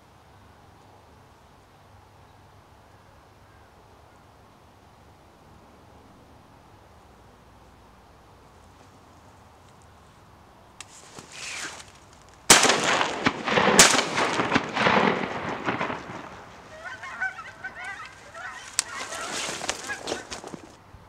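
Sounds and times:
geese honking: 0:12.6 - 0:20.8.

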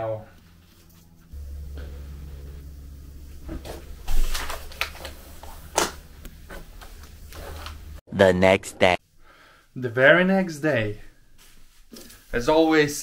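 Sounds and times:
vacuum pump humming: 0:00.4 - 0:08.0
plastic film crinkling: 0:04.1 - 0:05.9.

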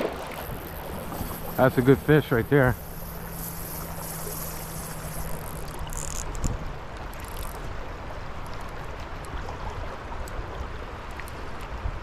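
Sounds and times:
creek water flowing: 0:00.0 - 0:12.0.

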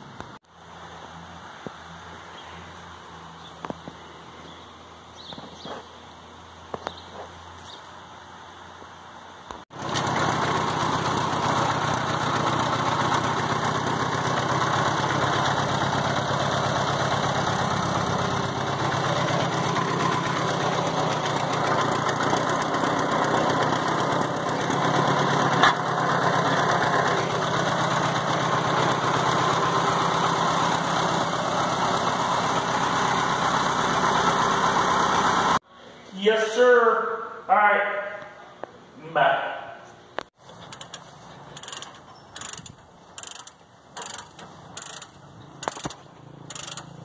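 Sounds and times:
engine running steadily: 0:00.0 - 0:35.6, 0:40.4 - 0:47.0
sharp click: 0:41.6 - 0:47.0.

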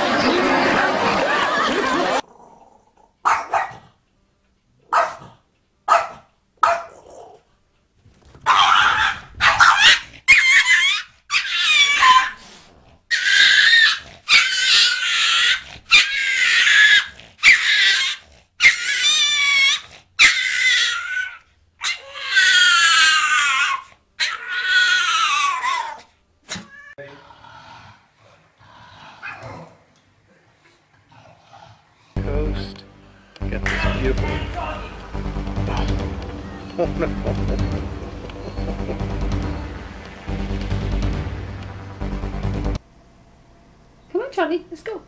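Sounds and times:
small dog barking: 0:03.2 - 0:03.9, 0:04.9 - 0:07.4, 0:08.4 - 0:12.4.

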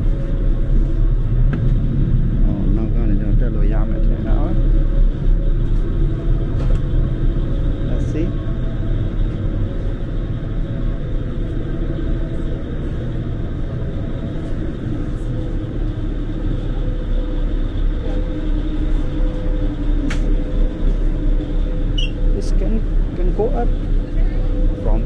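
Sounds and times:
faint steady hum: 0:00.0 - 0:25.0
ferry engines droning: 0:00.0 - 0:25.0.

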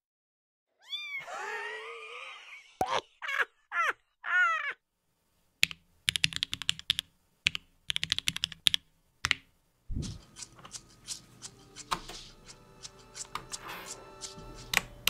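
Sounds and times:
mechanical keyboard clacking: 0:05.6 - 0:09.4
background music: 0:09.9 - 0:15.0.

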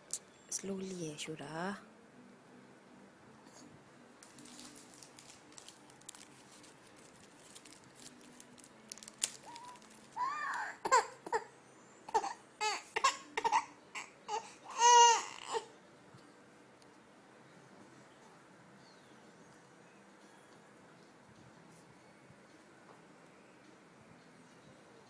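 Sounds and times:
faint clicks and rustling: 0:04.2 - 0:10.2
baby crying: 0:09.5 - 0:11.5, 0:12.1 - 0:15.7.

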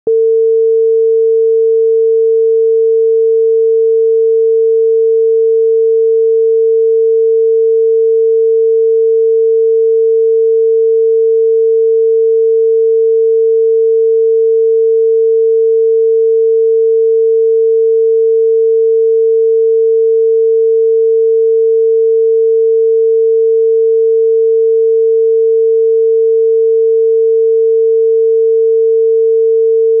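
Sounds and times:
telephone dial tone: 0:00.0 - 0:14.3.

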